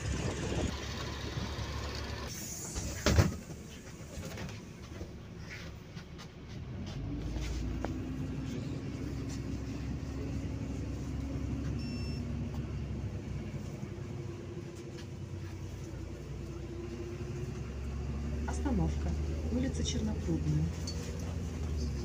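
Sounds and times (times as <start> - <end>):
bus engine and road rumble: 0.0 - 22.0
short beep: 11.8 - 12.3.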